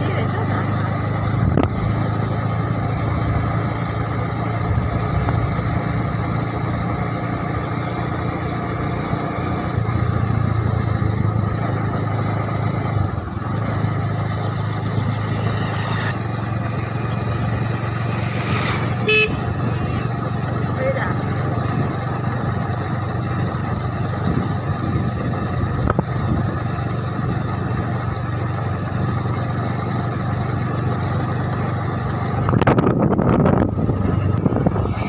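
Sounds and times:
vehicle engine drone: 0.0 - 35.0
tyre and wind noise: 32.3 - 35.0.

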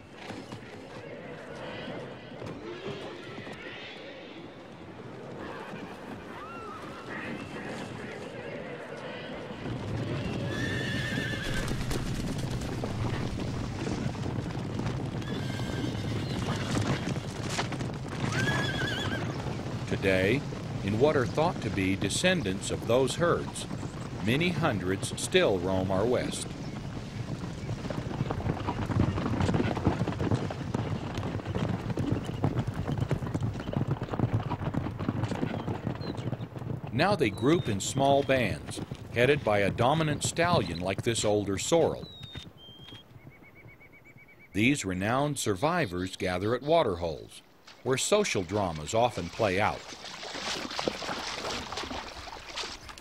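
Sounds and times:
hooves drumming: 0.0 - 53.0
horses galloping: 0.0 - 53.0
horse whinnying: 5.4 - 7.7, 10.1 - 13.5, 15.2 - 17.3, 18.1 - 19.6.

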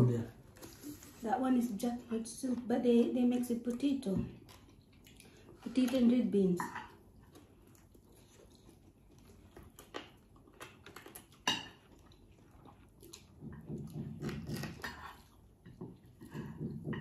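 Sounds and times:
chewing and biting: 3.7 - 5.7, 6.8 - 16.4.

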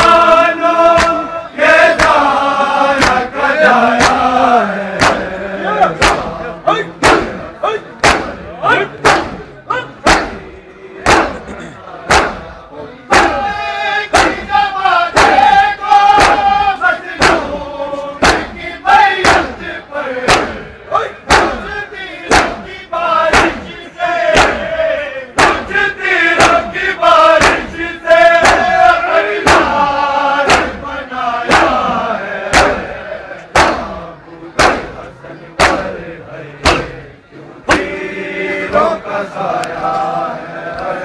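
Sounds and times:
crowd of men chanting: 0.0 - 41.0
hands slapping chests: 0.9 - 1.2, 1.9 - 2.3, 3.0 - 3.3, 4.0 - 4.2, 5.0 - 6.4, 7.0 - 7.4, 8.0 - 8.4, 9.0 - 9.4, 10.0 - 10.4, 11.0 - 11.5, 12.1 - 12.5, 14.1 - 14.5, 15.2 - 15.5, 16.2 - 16.6, 17.2 - 17.6, 18.2 - 18.6, 20.3 - 20.6, 21.3 - 21.6, 22.3 - 22.6, 24.3 - 24.7, 25.4 - 25.7, 26.4 - 26.7, 28.4 - 28.8, 29.4 - 29.8, 30.4 - 30.8, 31.5 - 31.8, 32.5 - 32.8, 33.5 - 33.9, 34.6 - 35.0, 35.6 - 35.9, 36.6 - 37.0.

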